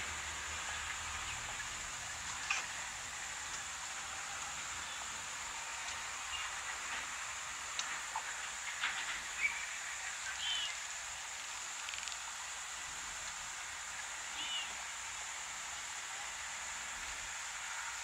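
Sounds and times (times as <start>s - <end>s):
steady hiss: 0.0s - 18.0s
faint clicks: 11.8s - 12.3s.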